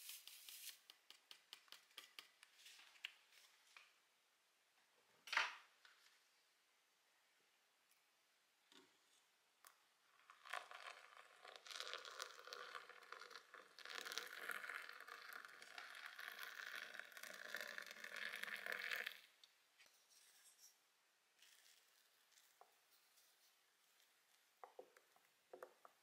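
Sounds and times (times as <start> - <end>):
water pouring into a glass mug: 10.2 - 19.3.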